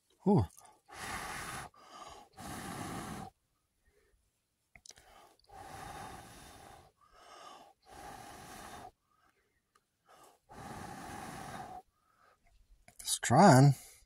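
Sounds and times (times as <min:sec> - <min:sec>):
person blowing on ember: 0:00.3 - 0:03.4, 0:05.0 - 0:09.0, 0:10.0 - 0:11.9.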